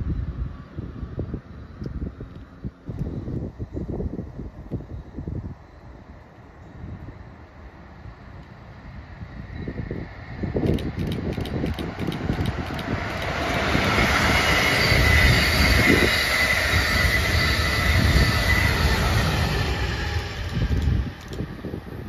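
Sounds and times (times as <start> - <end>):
steady high whine: 0.0 - 22.0
train wheels rumbling on rail: 7.8 - 22.0
rhythmic clicks: 10.6 - 13.6.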